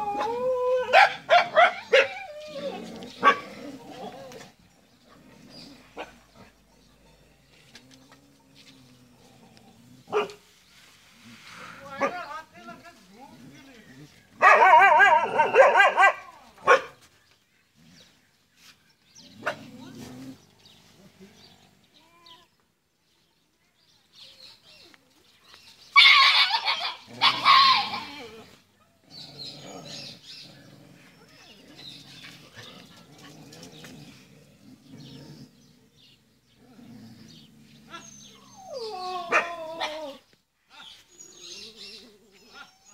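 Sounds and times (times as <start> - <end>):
dogs snarling and yelping: 0.0 - 10.5, 26.0 - 40.9
dog barking: 0.9 - 2.2, 3.2 - 3.5, 10.1 - 10.4, 14.4 - 17.0
dog growling: 2.2 - 10.2, 27.0 - 40.2.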